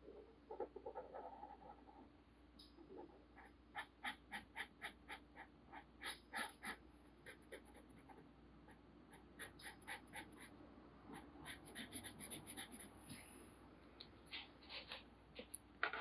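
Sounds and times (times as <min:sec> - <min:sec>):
marker scratching on paper: 0:03.4 - 0:10.5, 0:11.1 - 0:13.0.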